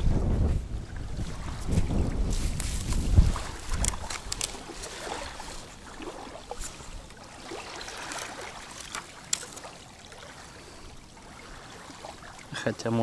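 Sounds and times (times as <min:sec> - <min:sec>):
light wind: 0:00.0 - 0:13.0
small waves lapping at shore: 0:00.4 - 0:13.0
faint sharp clicks of tackle: 0:02.4 - 0:05.6, 0:08.0 - 0:09.8.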